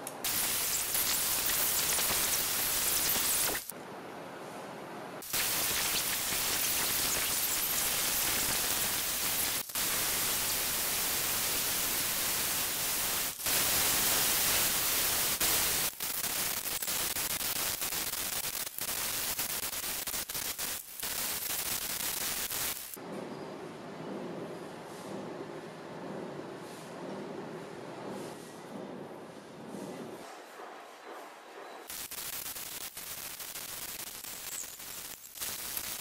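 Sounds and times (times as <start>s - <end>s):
sped-up grinder hiss: 0.3s - 3.7s, 5.2s - 23.0s, 31.9s - 36.0s.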